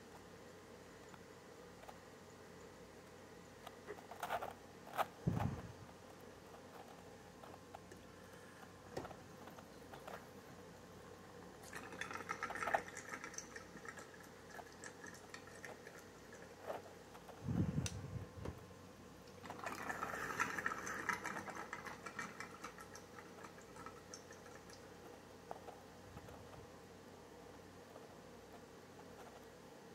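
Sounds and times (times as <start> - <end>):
water gurgling and trickling: 19.4 - 24.8.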